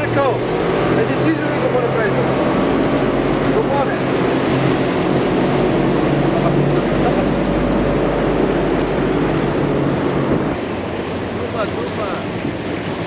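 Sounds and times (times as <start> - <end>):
outboard motor running: 0.0 - 13.0
water rushing past: 0.0 - 13.0
wind rushing: 0.0 - 13.0.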